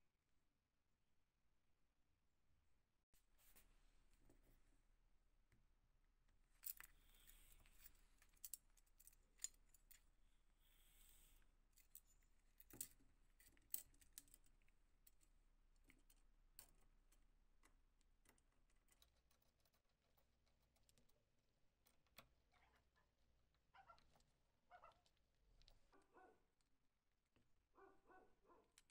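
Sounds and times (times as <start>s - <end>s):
faint clicks and metal taps: 6.3s - 10.2s, 11.7s - 22.7s, 28.7s - 28.9s.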